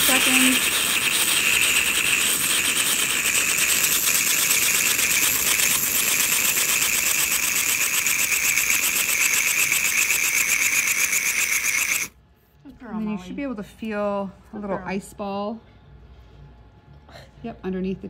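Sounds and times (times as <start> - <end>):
cryospray hissing: 0.0 - 12.1.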